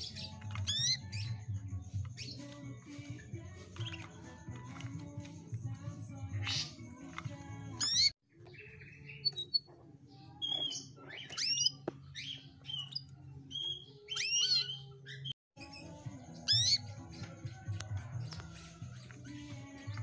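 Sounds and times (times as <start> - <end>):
canary chirping: 0.0 - 20.0
whistled bird notes: 7.7 - 17.8.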